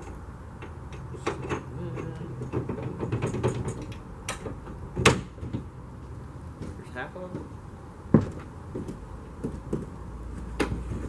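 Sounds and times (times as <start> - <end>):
metal frame knocks and rattles: 0.0 - 5.7, 8.1 - 11.0
low steady hum: 0.0 - 11.0.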